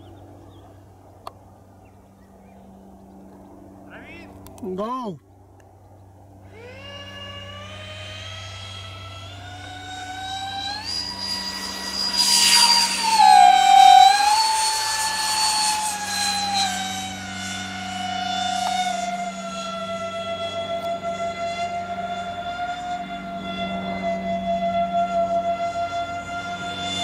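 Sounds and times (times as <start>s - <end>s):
model jet fans whining: 6.2s - 27.0s.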